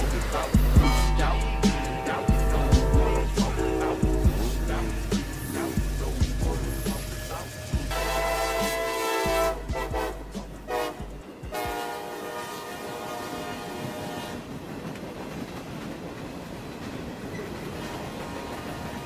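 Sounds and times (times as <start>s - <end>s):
locomotive air horn: 0.0s - 14.5s
train wheels rumbling on rails: 0.0s - 19.0s.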